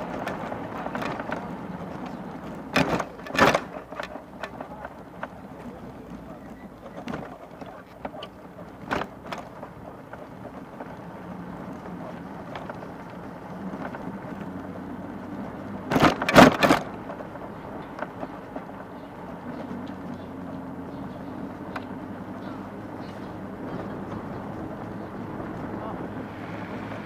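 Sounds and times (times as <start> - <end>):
sharp knocks and rattles: 0.0 - 6.2, 6.8 - 14.5, 15.8 - 22.6
street traffic rumble: 0.0 - 27.0.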